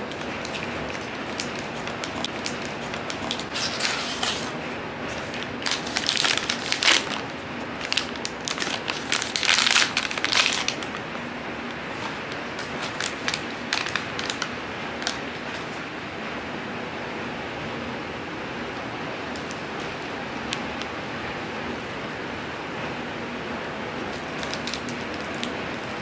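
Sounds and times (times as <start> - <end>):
packaging crinkling: 0.0 - 15.8, 24.0 - 26.0
steady background hiss: 0.0 - 26.0.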